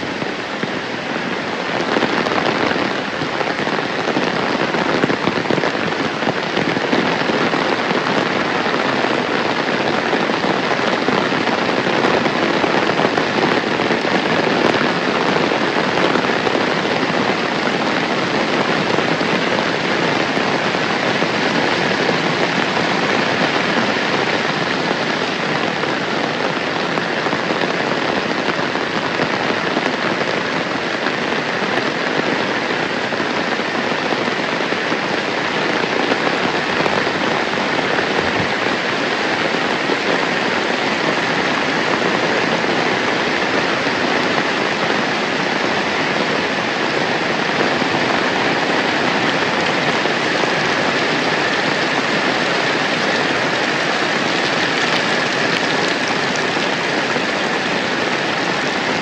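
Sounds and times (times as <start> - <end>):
heavy rain falling: 0.0 - 59.0.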